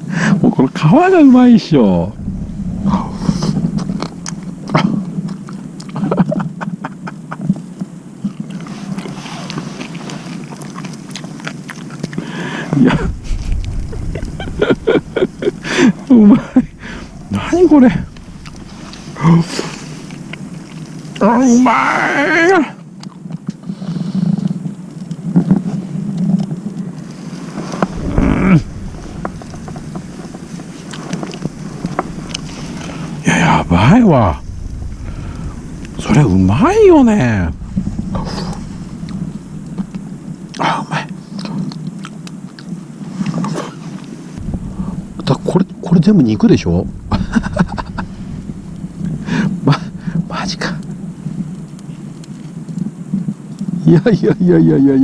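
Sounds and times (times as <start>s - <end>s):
wind rumble on microphone: 0.0s - 55.0s
steady low hum: 0.2s - 7.1s, 12.1s - 21.7s, 27.0s - 42.3s, 44.3s - 53.7s.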